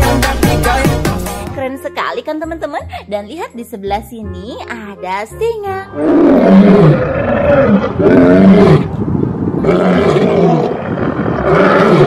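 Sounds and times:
lions roaring: 0:06.0 - 0:09.0, 0:09.6 - 0:12.0.

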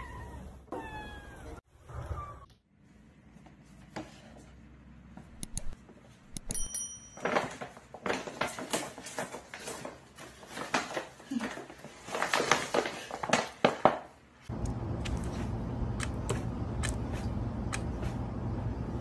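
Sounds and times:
paper bag rustling: 0:07.2 - 0:14.0.

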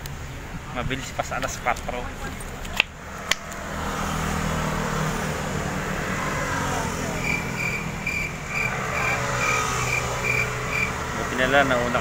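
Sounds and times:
car driving by: 0:03.0 - 0:12.0
insects chirping: 0:06.4 - 0:11.2.

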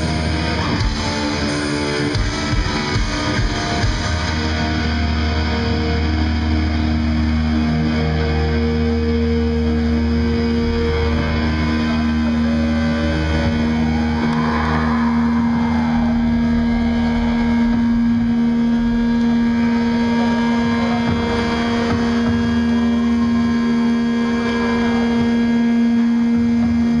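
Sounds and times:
amplifier feedback drone: 0:00.0 - 0:27.0
low rumble: 0:09.8 - 0:21.3.

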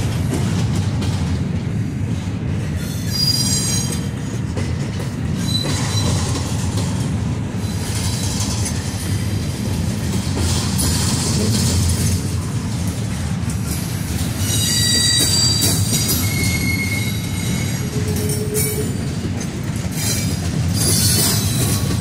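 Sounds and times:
train wheels rumbling on rails: 0:00.0 - 0:22.0
wheel squeals: 0:02.9 - 0:04.1, 0:05.4 - 0:06.5, 0:14.4 - 0:19.0, 0:20.0 - 0:22.0.

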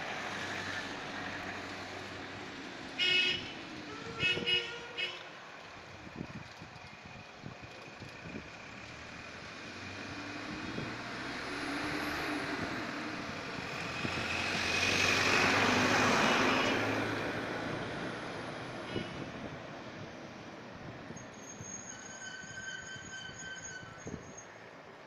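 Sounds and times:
passing vehicle engine rushing: 0:08.0 - 0:19.7.

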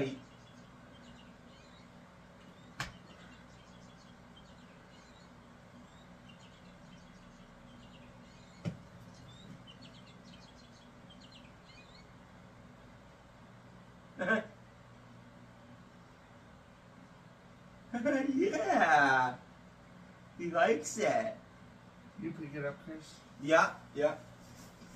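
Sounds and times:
low steady hum: 0:00.0 - 0:24.9
electronic bird chirps: 0:00.1 - 0:12.1.

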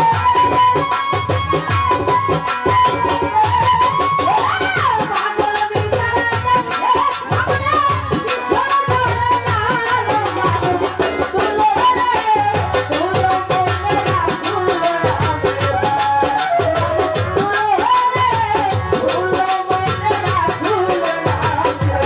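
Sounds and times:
bamboo flute: 0:00.0 - 0:04.8
keyboard: 0:00.0 - 0:22.0
percussion beat: 0:00.0 - 0:22.0
woman singing into a microphone: 0:00.0 - 0:22.0.

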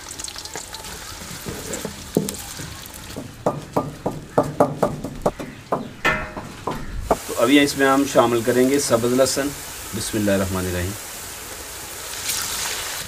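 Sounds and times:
onions sizzling in oil: 0:00.0 - 0:03.7, 0:07.0 - 0:13.0
pestle pounding in mortar: 0:01.8 - 0:02.4, 0:03.1 - 0:07.2.

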